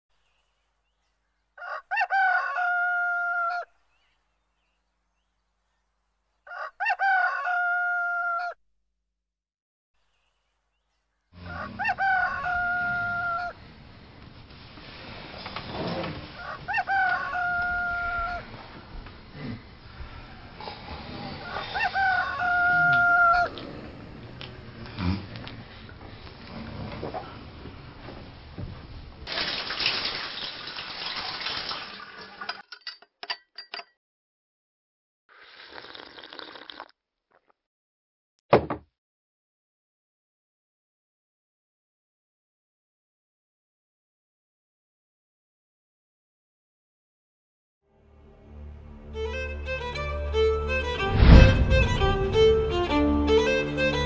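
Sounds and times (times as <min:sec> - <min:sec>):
rooster crowing: 0:01.6 - 0:03.7, 0:06.5 - 0:08.6, 0:11.4 - 0:13.6, 0:16.4 - 0:18.5, 0:21.4 - 0:24.0.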